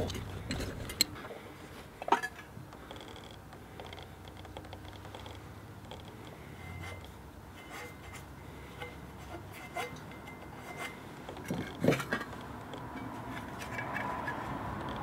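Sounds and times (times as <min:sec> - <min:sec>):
metal parts clattering: 0:00.0 - 0:01.1.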